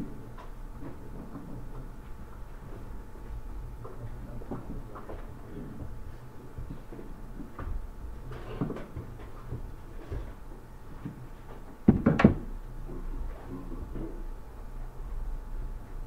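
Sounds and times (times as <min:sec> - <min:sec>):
faint room noise: 0:00.0 - 0:16.0
clatter of knocks: 0:11.6 - 0:12.5.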